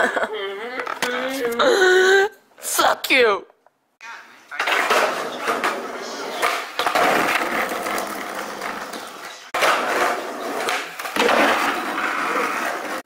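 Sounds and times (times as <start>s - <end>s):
skateboard wheels on rough asphalt: 4.8s - 13.0s.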